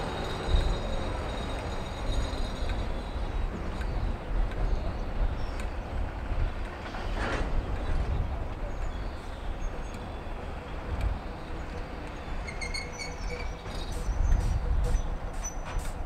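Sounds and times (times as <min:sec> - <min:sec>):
diesel locomotive rumble: 0:00.0 - 0:16.0
short high squeaks: 0:12.4 - 0:16.0.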